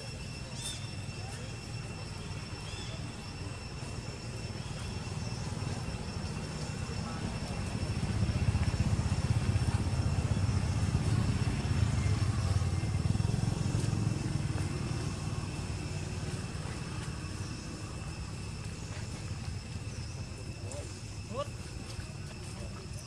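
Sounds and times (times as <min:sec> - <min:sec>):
passing vehicle rumble: 0:05.2 - 0:20.2.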